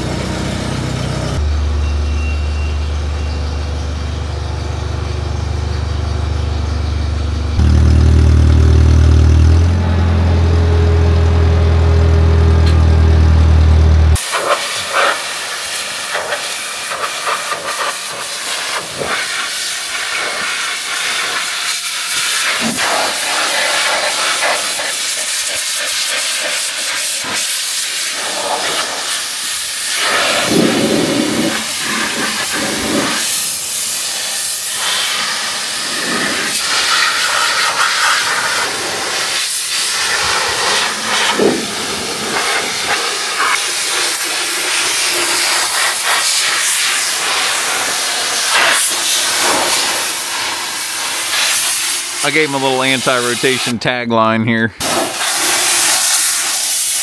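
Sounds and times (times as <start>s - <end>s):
pressure washer spraying metal: 14.2s - 53.8s, 54.8s - 57.0s.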